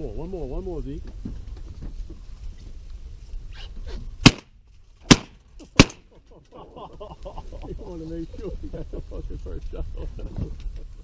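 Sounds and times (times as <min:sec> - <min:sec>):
shotgun shots: 0:04.2 - 0:04.5, 0:05.1 - 0:06.0.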